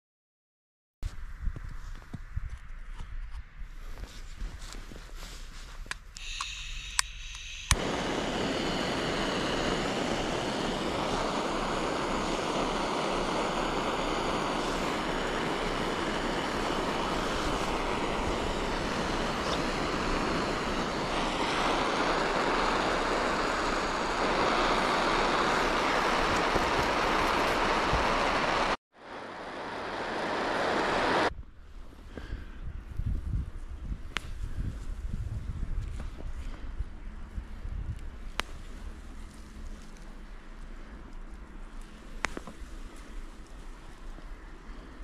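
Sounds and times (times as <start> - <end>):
steady rushing noise: 6.2 - 32.1.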